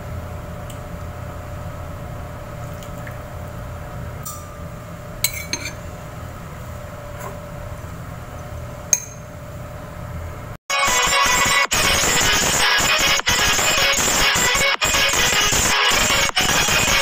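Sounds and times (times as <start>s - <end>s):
steady low hum: 0.0s - 10.6s
spoon clinking on ceramic bowl: 5.2s - 5.8s, 9.0s - 9.3s.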